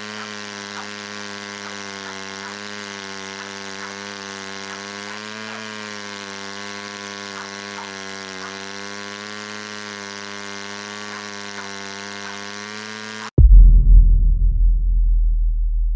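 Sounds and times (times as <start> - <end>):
steady buzzing hum: 0.0 - 13.4
loud deep rumble: 13.4 - 15.9.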